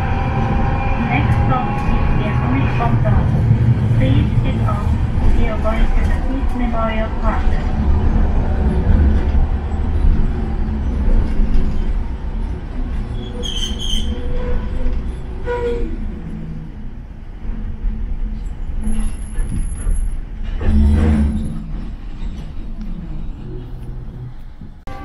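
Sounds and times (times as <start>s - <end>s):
tram rumble: 0.0s - 25.0s
high wheel squeal: 13.1s - 15.9s.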